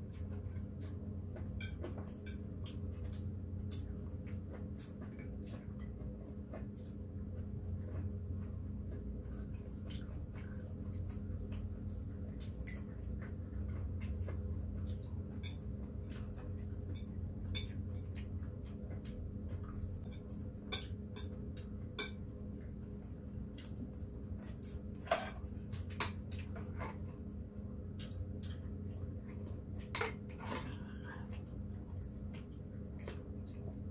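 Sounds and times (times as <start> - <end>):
cutlery clinking on plates: 1.5 - 2.4.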